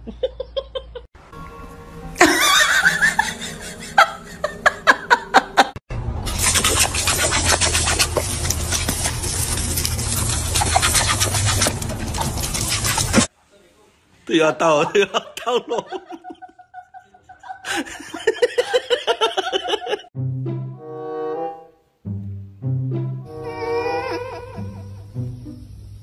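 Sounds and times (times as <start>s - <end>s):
laughter: 0.0s - 1.1s, 2.2s - 5.8s, 14.7s - 20.1s
music: 1.2s - 4.8s, 20.2s - 26.0s
hose nozzle spraying water: 6.2s - 13.3s.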